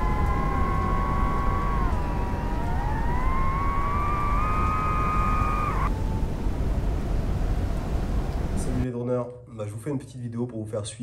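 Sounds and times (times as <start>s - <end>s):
drone propellers whining: 0.0s - 6.8s
low rush of air: 0.0s - 8.9s.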